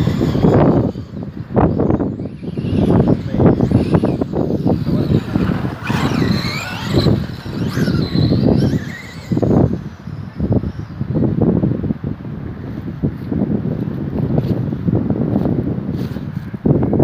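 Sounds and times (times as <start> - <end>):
rc truck motor whining: 0.0 - 11.4
wind rumbling on microphone: 0.0 - 17.0.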